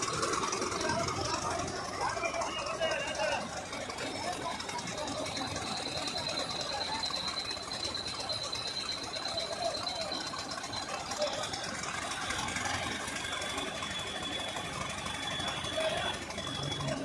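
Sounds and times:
construction machinery engine: 0:00.0 - 0:17.0.

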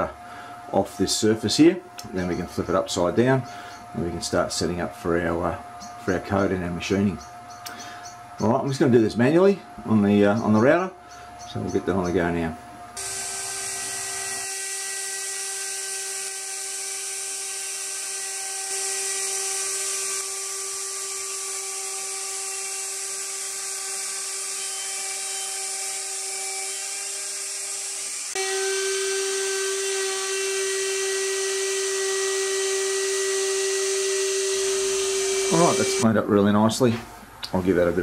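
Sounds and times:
router spindle high whine: 0:11.5 - 0:36.1.

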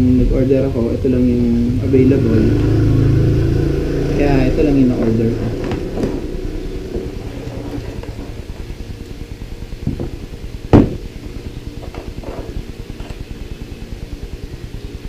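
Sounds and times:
steady low hum: 0:00.0 - 0:15.0
box knocking on wooden table: 0:09.8 - 0:11.0
cables rustling and knocking: 0:09.8 - 0:11.1.

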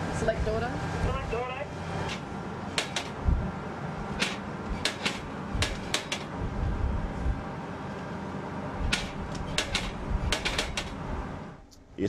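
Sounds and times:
low rumble: 0:03.2 - 0:04.7, 0:06.3 - 0:07.6.

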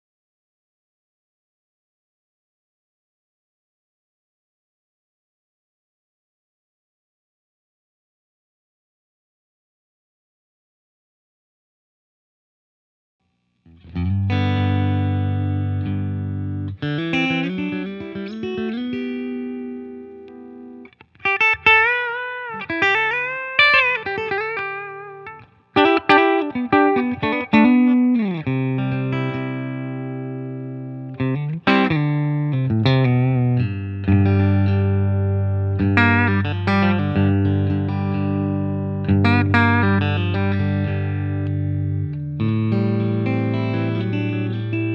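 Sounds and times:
clean electric guitar: 0:13.7 - 0:44.9.

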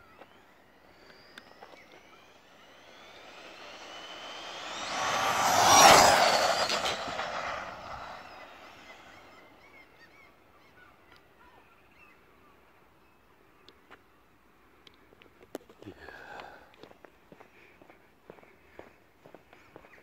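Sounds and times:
rc car motor whine passing: 0:00.0 - 0:10.2.

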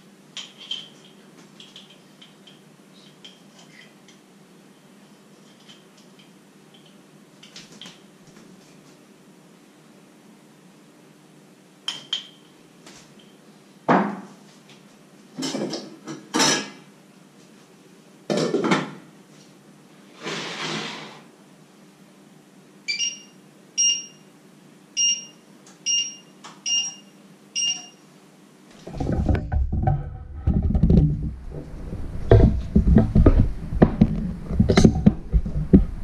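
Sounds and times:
short electronic beeps: 0:25.0 - 0:28.0
rumbling thumps: 0:28.8 - 0:36.0.

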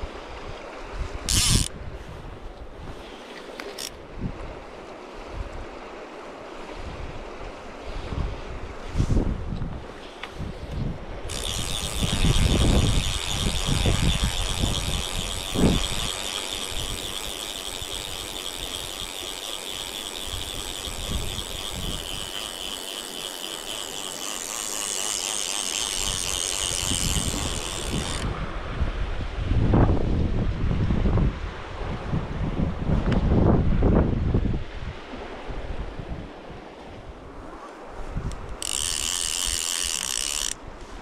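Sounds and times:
fishing reel ratchet buzzing: 0:01.3 - 0:01.8, 0:03.6 - 0:04.0, 0:11.2 - 0:28.4, 0:38.3 - 0:40.6.

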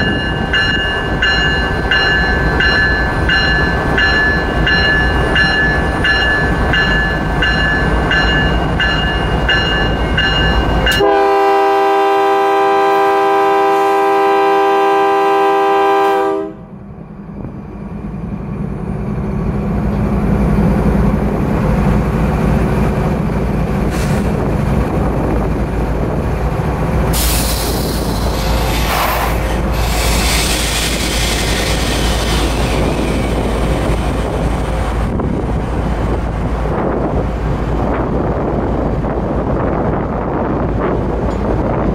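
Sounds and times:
locomotive bell ringing: 0:00.0 - 0:11.2
locomotive horn blast: 0:10.9 - 0:16.8.

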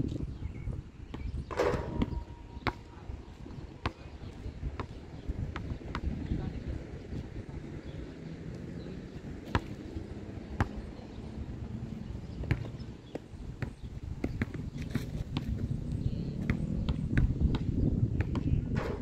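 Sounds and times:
basketball bouncing on hard court: 0:01.1 - 0:02.9, 0:09.4 - 0:09.8, 0:12.4 - 0:14.6, 0:16.4 - 0:19.0.

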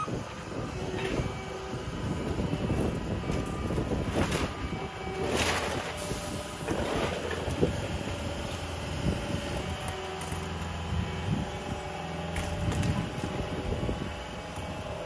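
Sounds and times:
diesel engine running: 0:00.0 - 0:15.0
grapple crunching through debris: 0:02.8 - 0:11.0.

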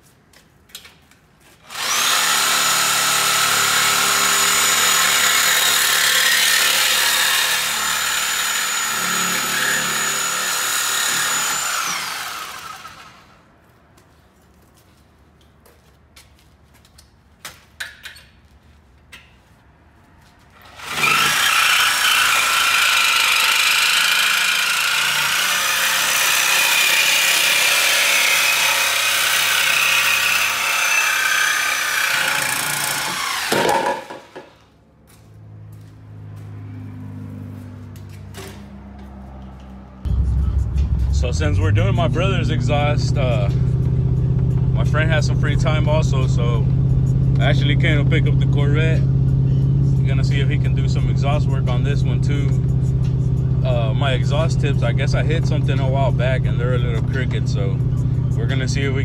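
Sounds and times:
reciprocating saw cutting pipe: 0:01.6 - 0:13.4, 0:20.6 - 0:34.6.

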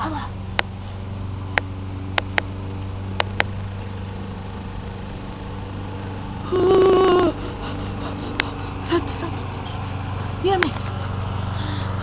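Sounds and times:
steady low hum: 0:00.0 - 0:12.0
sharp clicks: 0:01.5 - 0:02.5, 0:03.2 - 0:03.6
loud held tone: 0:06.4 - 0:07.4.

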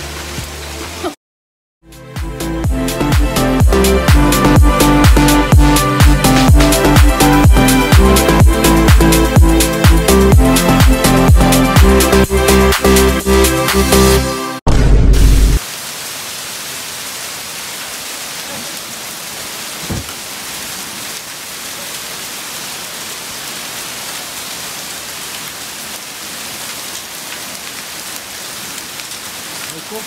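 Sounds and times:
rain and hail hissing: 0:00.0 - 0:01.2, 0:15.6 - 0:30.0.

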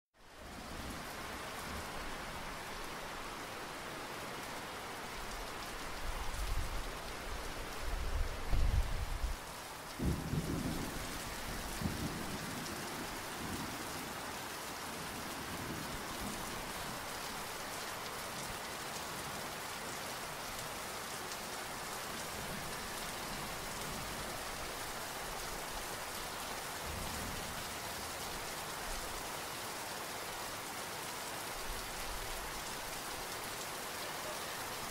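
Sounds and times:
rain falling: 0:00.2 - 0:34.9.

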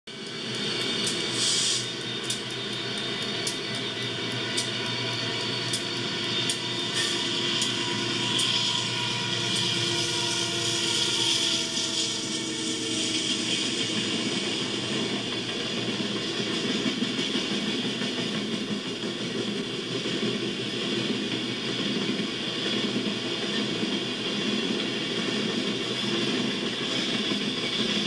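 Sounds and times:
diesel locomotives passing: 0:00.1 - 0:28.0
sharp rhythmic clicks: 0:01.8 - 0:06.6.

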